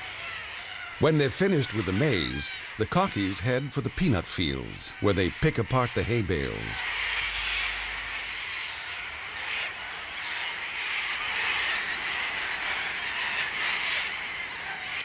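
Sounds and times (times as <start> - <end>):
cockatoos screeching: 0.0 - 15.0
low rush of wings: 4.4 - 15.0.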